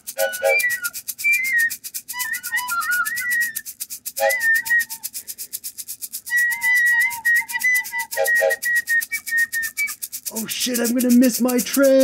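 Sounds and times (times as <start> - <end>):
flute-like melody: 0.0 - 5.2, 6.2 - 10.1
fast ticking beat: 0.0 - 12.0
person's voice: 10.3 - 12.0.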